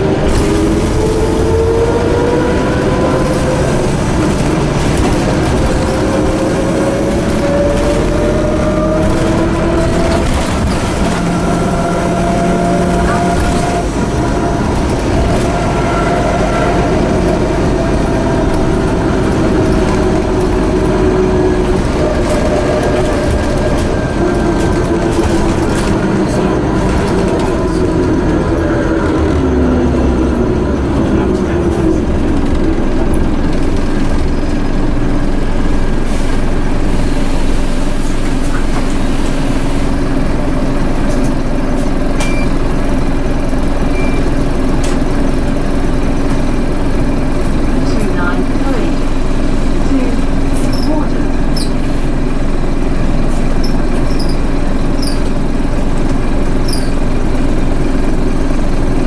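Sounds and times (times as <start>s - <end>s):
bus differential whine: 0.0s - 59.0s
bus engine drone: 0.0s - 59.0s.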